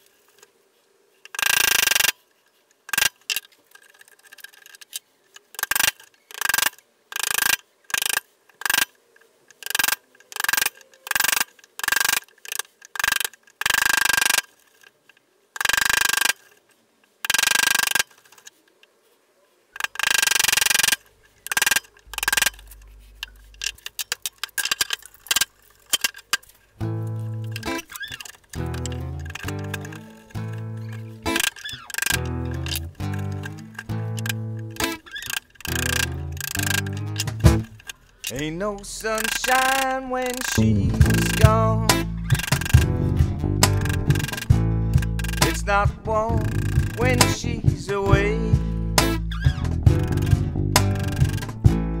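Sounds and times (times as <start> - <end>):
quick short clicks: 27.0 - 48.0.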